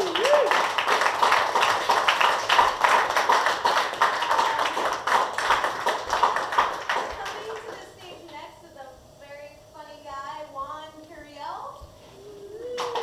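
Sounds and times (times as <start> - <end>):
audience clapping: 0.0 - 8.2, 12.7 - 13.0.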